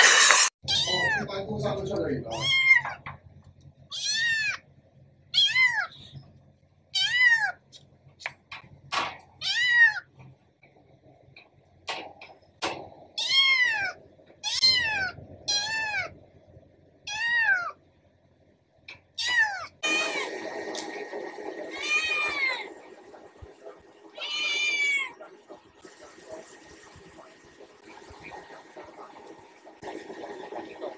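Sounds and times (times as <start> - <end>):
kittens meowing: 2.3 - 3.0, 3.9 - 4.6, 5.4 - 6.1, 13.2 - 16.2, 17.1 - 17.8, 19.2 - 20.3, 21.7 - 22.7, 24.2 - 25.2.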